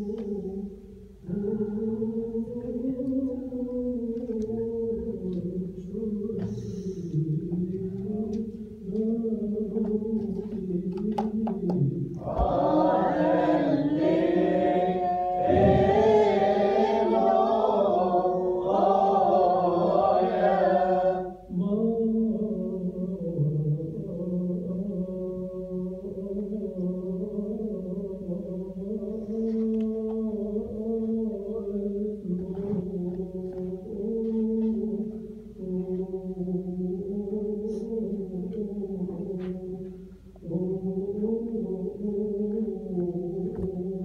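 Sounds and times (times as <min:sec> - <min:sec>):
voices chanting held notes: 0:12.1 - 0:21.5.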